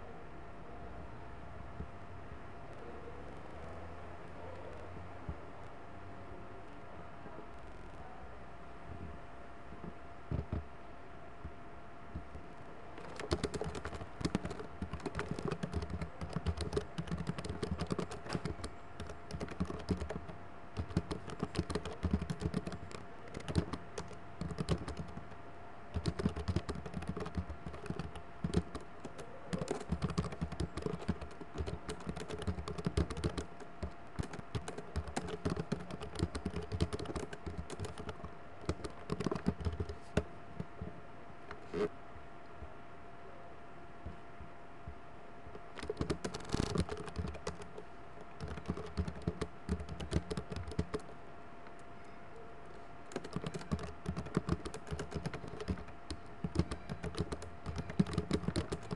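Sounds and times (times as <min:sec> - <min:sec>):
faint steady hum: 0:00.0 - 0:58.9
typing on computer keyboard: 0:13.0 - 0:40.3, 0:45.7 - 0:51.1, 0:53.1 - 0:58.9.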